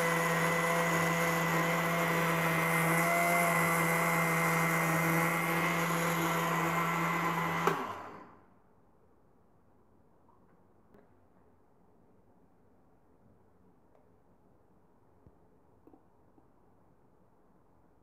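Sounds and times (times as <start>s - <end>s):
mixer-grinder motor running: 0.0s - 8.4s.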